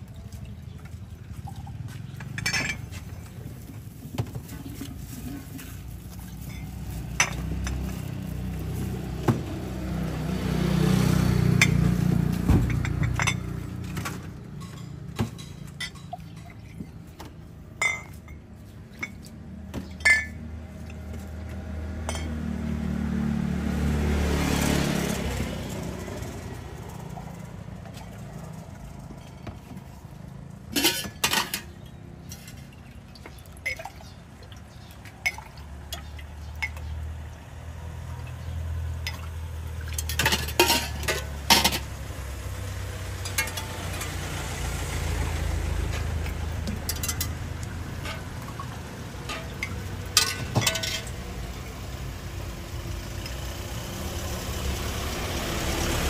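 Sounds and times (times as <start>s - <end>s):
glasses and spoon clinking: 2.2s - 3.1s, 6.4s - 7.9s, 12.6s - 13.6s, 14.5s - 17.0s, 17.8s - 19.3s, 19.9s - 20.5s, 22.0s - 22.4s, 30.7s - 32.6s, 39.9s - 41.8s, 43.2s - 44.2s, 46.6s - 47.4s, 48.0s - 51.2s
passing vehicle rumble: 5.0s - 16.8s, 19.4s - 30.8s, 34.4s - 56.0s.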